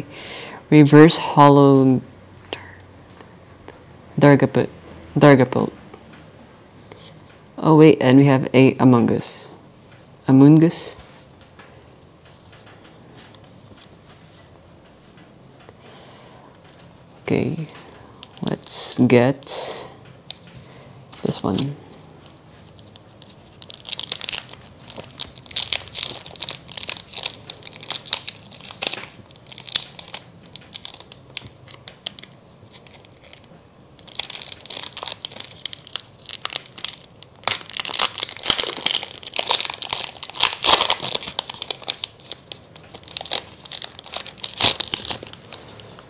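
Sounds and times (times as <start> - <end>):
plastic wrapper tearing and crinkling: 21.1 - 21.8, 22.6 - 46.0.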